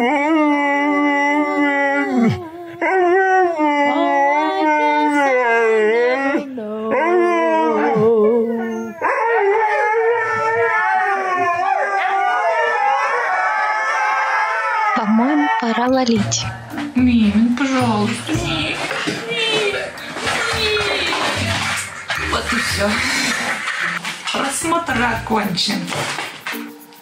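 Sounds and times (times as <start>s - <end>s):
husky howling: 0.0s - 16.0s.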